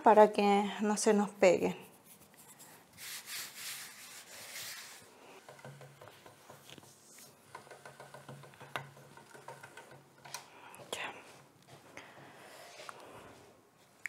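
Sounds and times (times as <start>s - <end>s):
hands rubbing flour on dough: 1.7s - 5.4s
pasta machine ticking and humming: 7.4s - 10.9s.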